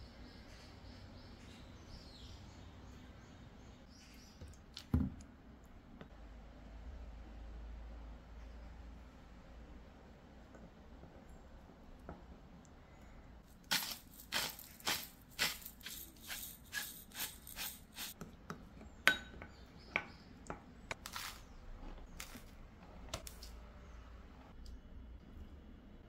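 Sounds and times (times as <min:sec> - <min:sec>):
pepper grinder crunching: 0:13.5 - 0:18.1, 0:21.0 - 0:22.5.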